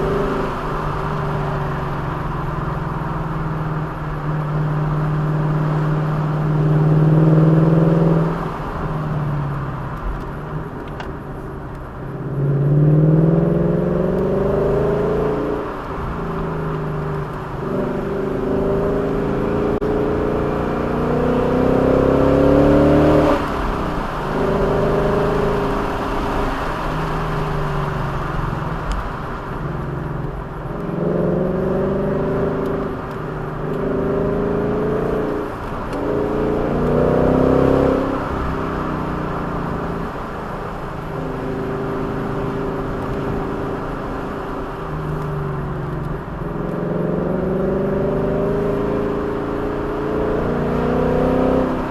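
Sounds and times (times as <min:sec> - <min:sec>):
low road rumble: 0:00.0 - 0:51.9
vehicle engine accelerating: 0:00.0 - 0:51.9.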